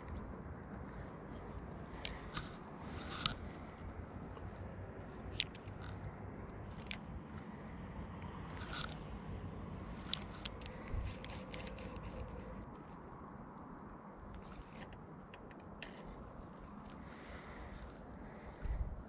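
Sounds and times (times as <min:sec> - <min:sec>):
small ticks: 0:00.0 - 0:13.1, 0:13.9 - 0:18.6
fishing reel whirring: 0:08.4 - 0:12.7.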